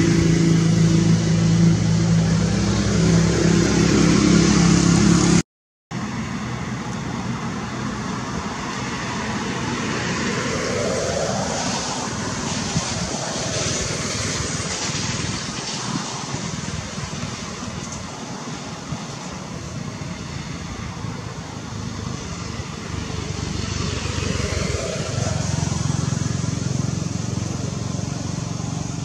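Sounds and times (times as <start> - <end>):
vehicle passing: 0.0 - 5.4, 6.0 - 29.0
vehicle engine humming: 0.0 - 29.0.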